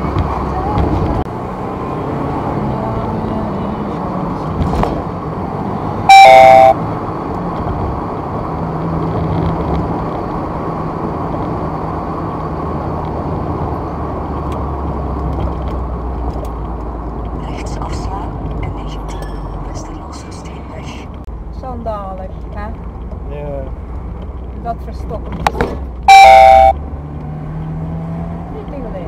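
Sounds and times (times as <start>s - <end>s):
car cabin road and engine noise: 0.0s - 29.0s
electronic chime stepping down: 6.1s - 6.8s, 26.1s - 26.8s
thump: 25.4s - 25.9s.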